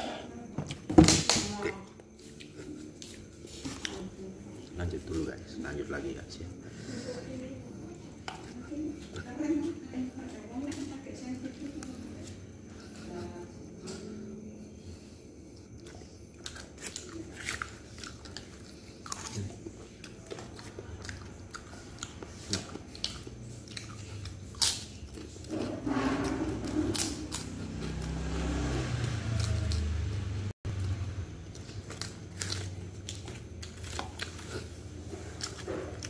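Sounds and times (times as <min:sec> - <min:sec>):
biting and chewing: 0:14.9 - 0:36.0.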